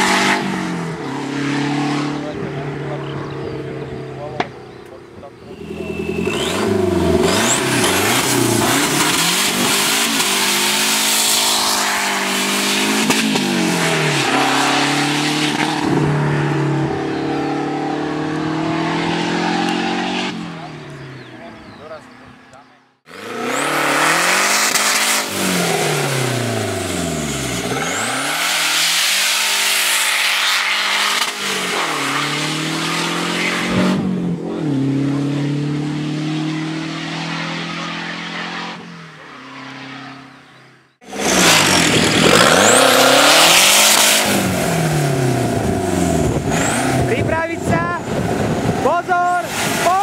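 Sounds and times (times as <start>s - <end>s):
car engine revving: 0.0s - 50.0s.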